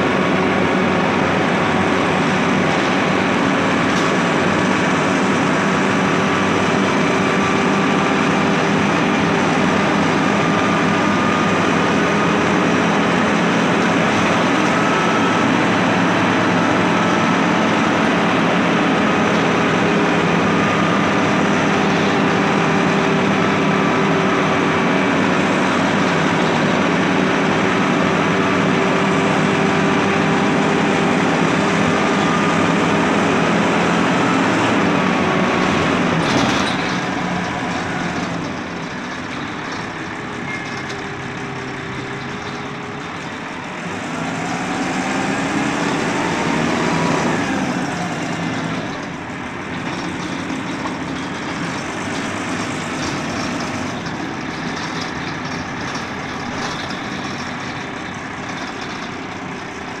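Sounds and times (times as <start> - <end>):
bus engine running: 0.0 - 60.0
rising whine of bus accelerating: 0.0 - 60.0
clunk: 35.6 - 43.6, 48.5 - 60.0.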